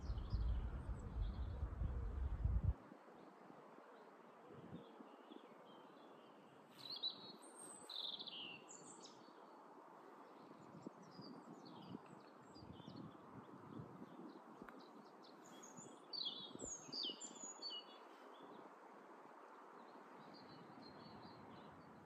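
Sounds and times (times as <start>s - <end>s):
small birds chirping: 6.7s - 9.4s, 10.4s - 18.7s.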